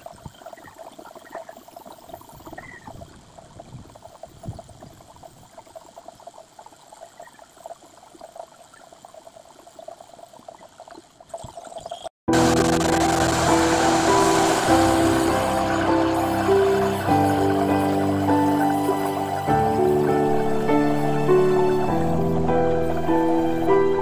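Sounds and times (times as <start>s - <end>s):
music: 12.3s - 24.0s
spray gun hissing: 12.4s - 24.0s.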